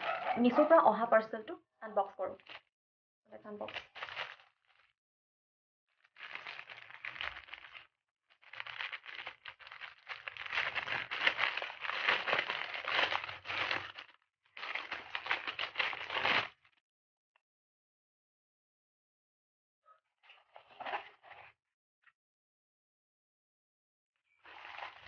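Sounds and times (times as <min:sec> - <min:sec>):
plastic mailer bag crinkling: 0:02.4 - 0:02.6, 0:03.6 - 0:04.9, 0:06.0 - 0:16.6, 0:24.4 - 0:25.0.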